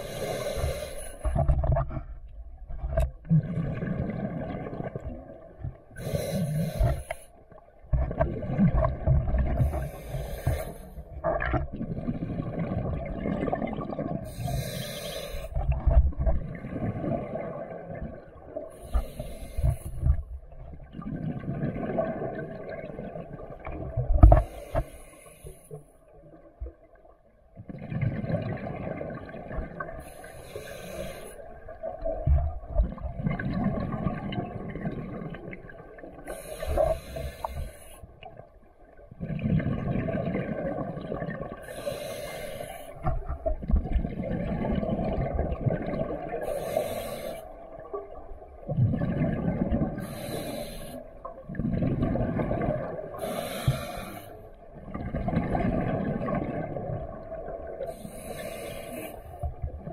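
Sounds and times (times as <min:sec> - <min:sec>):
regulator inhale hiss: 0:00.0 - 0:01.4, 0:06.0 - 0:07.4, 0:09.6 - 0:11.0, 0:14.3 - 0:15.6, 0:18.7 - 0:20.2, 0:24.4 - 0:26.0, 0:30.0 - 0:31.5, 0:36.3 - 0:38.1, 0:41.6 - 0:43.1, 0:46.4 - 0:47.6, 0:50.0 - 0:51.1, 0:53.1 - 0:54.5, 0:57.9 - 0:59.5
exhaled bubbles rumbling: 0:00.0 - 0:14.8, 0:15.4 - 0:24.6, 0:26.2 - 0:30.2, 0:31.4 - 0:42.4, 0:43.0 - 0:47.0, 0:47.6 - 0:58.6.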